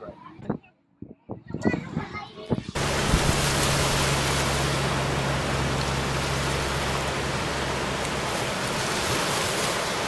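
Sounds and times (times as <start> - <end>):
low hum: 2.8 - 10.0
ocean surf on beach: 2.8 - 10.0.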